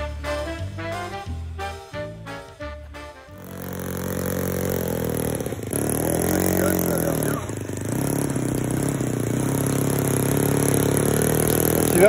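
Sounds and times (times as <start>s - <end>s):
model airplane engine running: 3.4s - 12.0s.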